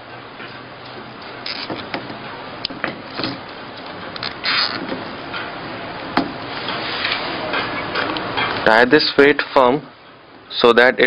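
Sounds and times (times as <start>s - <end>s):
cable clicks and rubbing: 1.2s - 2.1s, 3.1s - 5.5s
short scrape: 6.5s - 7.5s.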